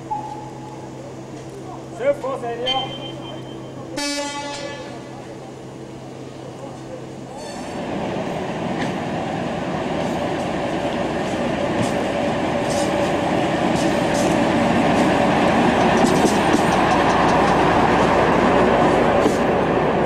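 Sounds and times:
diesel railcar passing: 0.0 - 20.0
wheels clicking over rail joints: 15.7 - 19.5.

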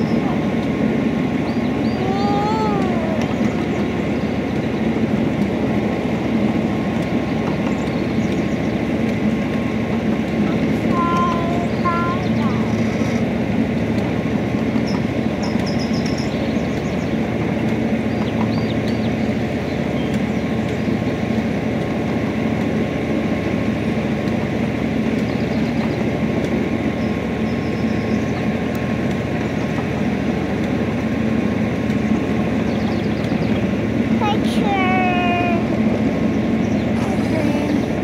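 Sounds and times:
train cars rumbling on rails: 0.0 - 38.0.

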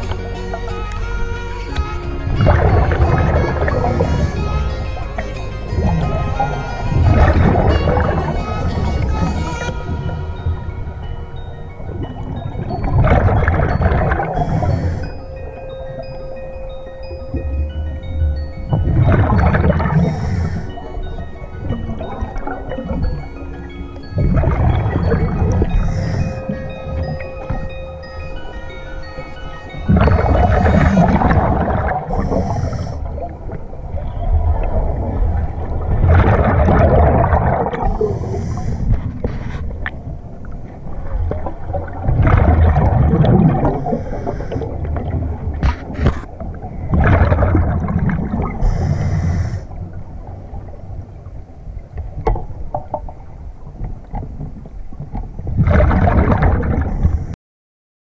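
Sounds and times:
regulator inhale hiss: 14.4 - 15.2, 20.0 - 20.8, 32.2 - 33.1, 37.9 - 39.0, 43.8 - 44.8, 48.6 - 49.8
diver exhaling bubbles: 29.9 - 33.3, 35.6 - 39.1, 46.9 - 49.6, 55.6 - 57.2.

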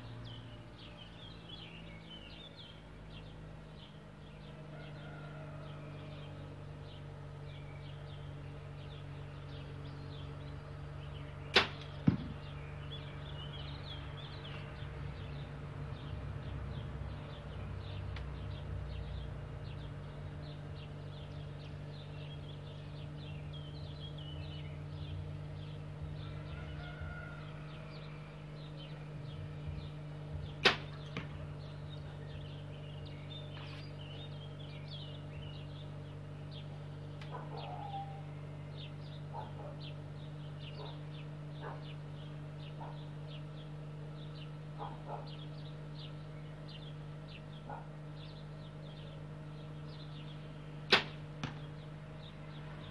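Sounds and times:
bow string snapping: 11.5 - 12.3, 30.6 - 31.3, 50.9 - 51.7.

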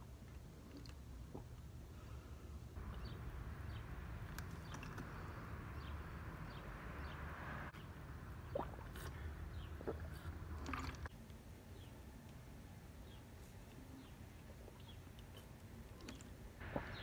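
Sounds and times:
person gulping water: 0.6 - 1.6, 8.5 - 11.1.

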